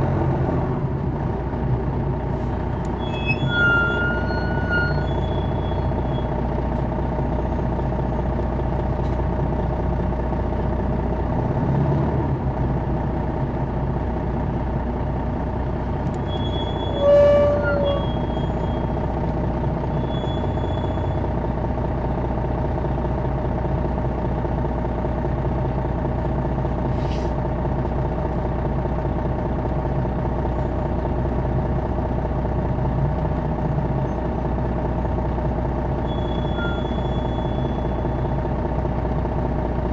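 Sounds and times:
bus diesel engine running: 0:00.0 - 0:39.9
brief pitched tone: 0:03.0 - 0:06.3, 0:16.2 - 0:18.9, 0:36.1 - 0:38.2.

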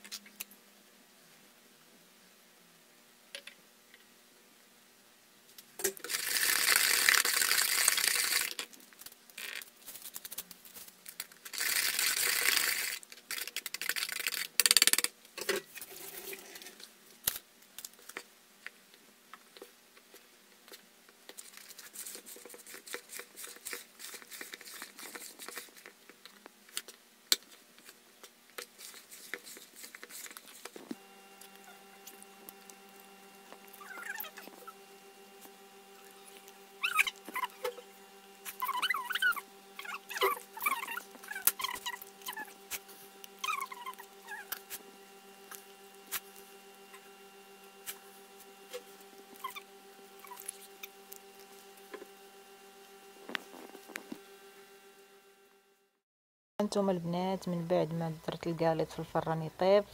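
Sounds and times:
faint steady hum: 0:00.0 - 0:56.0
whisk beating batter in bowl: 0:05.8 - 0:08.6, 0:11.5 - 0:15.0, 0:21.4 - 0:26.2, 0:28.6 - 0:47.1.

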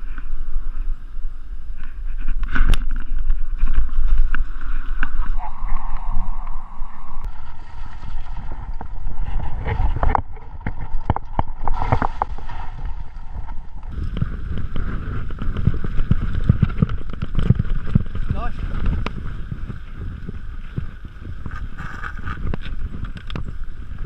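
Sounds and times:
tyre and wind rumble: 0:00.0 - 0:24.0
bike clattering over stones: 0:10.0 - 0:20.1.

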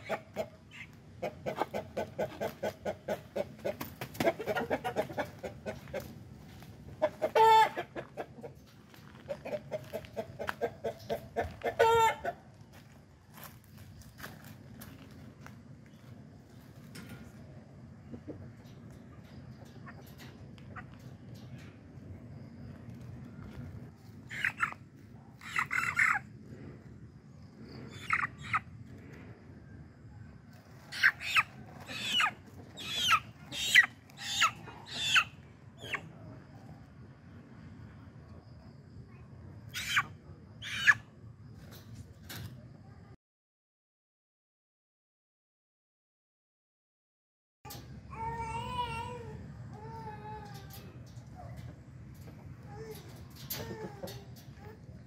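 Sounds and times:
chicken squawking: 0:00.0 - 0:06.0, 0:07.0 - 0:08.5, 0:09.3 - 0:12.4, 0:24.2 - 0:26.3, 0:27.9 - 0:28.7, 0:30.9 - 0:36.1, 0:39.7 - 0:41.0
chicken clucking: 0:00.0 - 0:12.7, 0:15.3 - 0:29.0, 0:29.9 - 0:36.9, 0:39.5 - 0:42.6, 0:50.5 - 0:55.0
chicken squawking loudly: 0:07.0 - 0:08.0, 0:11.6 - 0:12.4, 0:24.3 - 0:24.8, 0:25.4 - 0:26.2, 0:30.9 - 0:36.0, 0:39.7 - 0:41.0.

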